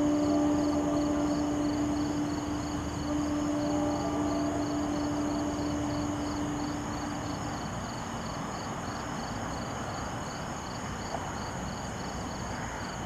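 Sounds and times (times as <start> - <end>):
high-pitched buzz: 0.0 - 7.8
faint low hum: 0.0 - 9.0
night insects chirping: 0.0 - 13.0.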